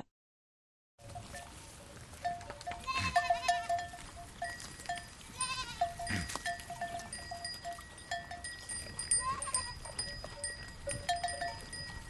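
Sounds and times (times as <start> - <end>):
light clinking notes: 1.1 - 12.0
goats bleating: 2.7 - 3.9, 5.2 - 7.2, 9.0 - 9.8.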